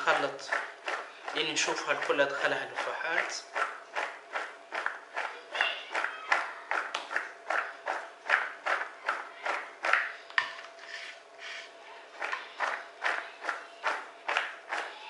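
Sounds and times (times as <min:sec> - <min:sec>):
potatoes shaken in plastic colander: 0:00.0 - 0:10.1.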